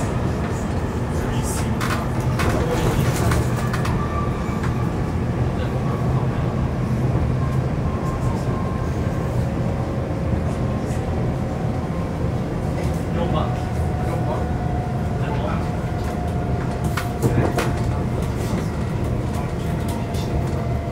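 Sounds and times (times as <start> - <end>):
train wheels rumbling: 10.7 - 20.9.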